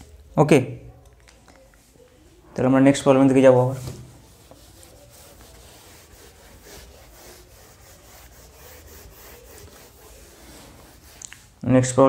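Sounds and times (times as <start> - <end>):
eraser swishing on whiteboard: 3.8 - 11.6.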